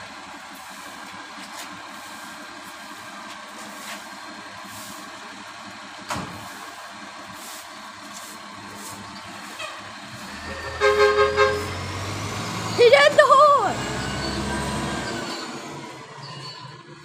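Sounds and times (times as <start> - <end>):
garbage truck idling: 0.0 - 17.0.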